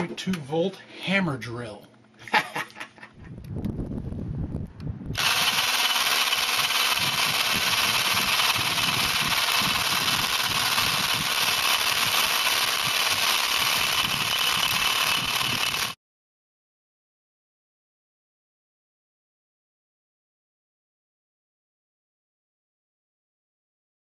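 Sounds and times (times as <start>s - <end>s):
hammer drill boring into brick: 5.2s - 16.0s.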